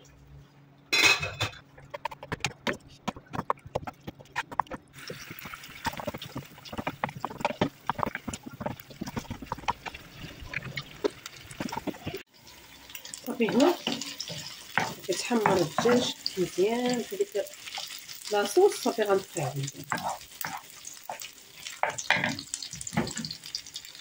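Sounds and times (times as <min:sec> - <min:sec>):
spatula scraping frying pan: 0:01.0 - 0:12.2, 0:13.3 - 0:23.4
sauce sizzling: 0:04.9 - 0:24.0.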